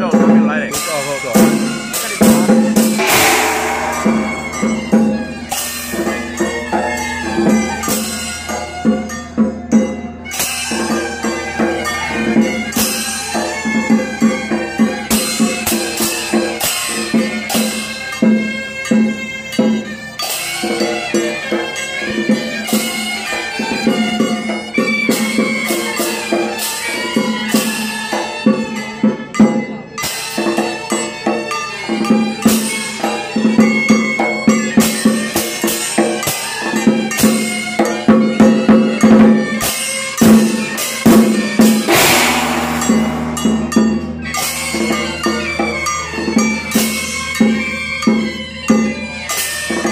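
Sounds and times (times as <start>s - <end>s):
hand cymbals: 0.8s - 49.9s
barrel drum: 2.3s - 6.2s, 41.1s - 45.4s
loud cymbal crash: 2.9s - 6.2s, 41.6s - 45.2s
large gongs: 2.9s - 7.1s, 41.1s - 45.4s
droning tone: 3.0s - 5.4s.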